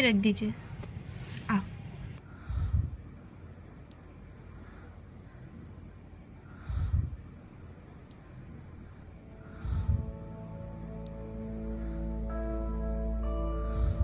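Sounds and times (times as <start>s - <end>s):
crickets chirping: 0.0s - 14.0s
dull low thump: 6.8s - 7.2s.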